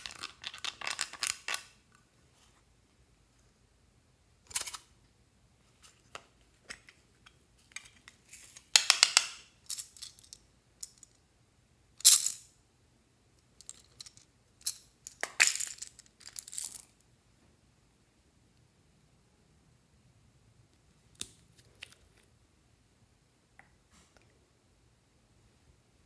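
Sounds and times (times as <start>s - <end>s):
plastic beads clicking and rattling: 0.0s - 1.7s, 13.6s - 16.9s.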